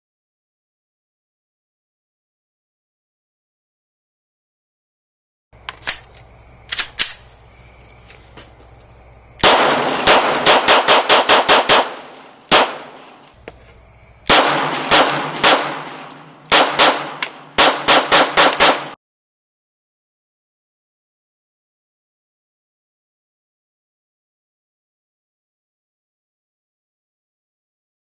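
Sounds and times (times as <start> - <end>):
pistol shots with ringing echo: 9.4 - 13.3, 14.2 - 19.0.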